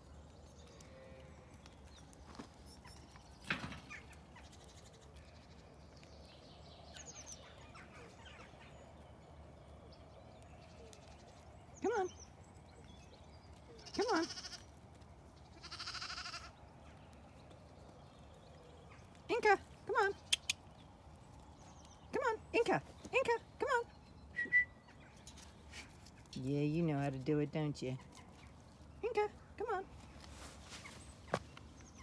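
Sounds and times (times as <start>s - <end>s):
lambs bleating: 13.8s - 14.7s, 15.6s - 16.5s.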